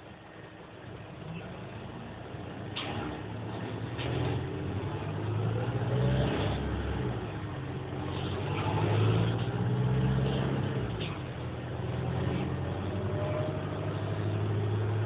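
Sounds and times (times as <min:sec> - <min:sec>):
bus drivetrain hum: 0:00.0 - 0:15.0.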